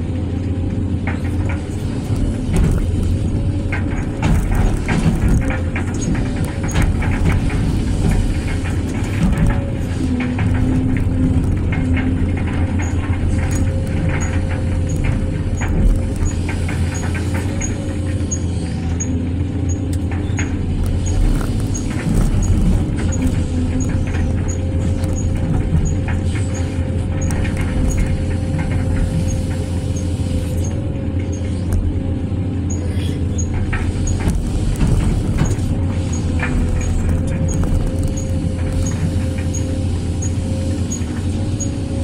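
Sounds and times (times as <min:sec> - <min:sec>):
excavator diesel engine: 0:00.0 - 0:42.0.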